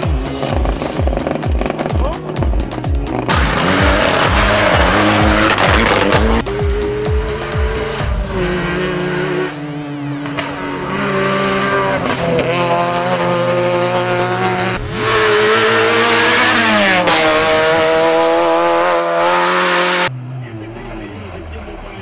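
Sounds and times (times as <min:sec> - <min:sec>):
gravel under tyres: 0:00.0 - 0:06.8
rally car engine revving: 0:00.0 - 0:22.0.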